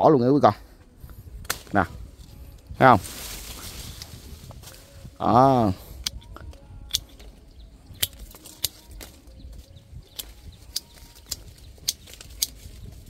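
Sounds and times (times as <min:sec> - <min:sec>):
pruning shears snipping: 0:01.4 - 0:04.8, 0:06.0 - 0:09.4, 0:10.0 - 0:13.0.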